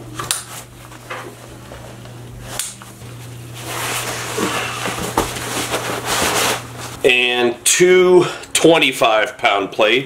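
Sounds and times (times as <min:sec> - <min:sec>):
steady low hum: 0:00.0 - 0:10.0
fabric rustling: 0:03.2 - 0:07.0.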